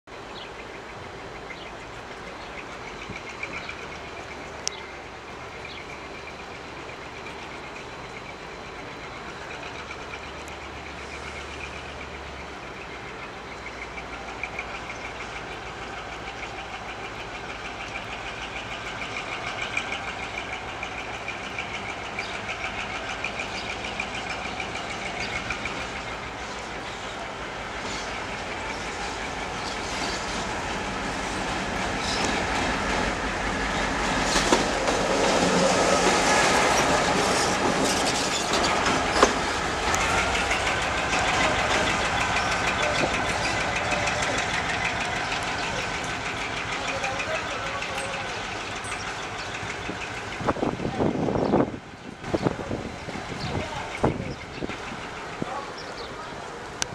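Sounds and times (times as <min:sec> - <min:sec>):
diesel locomotive engine: 0:00.1 - 0:56.9
wheels clicking over rails: 0:13.8 - 0:56.9.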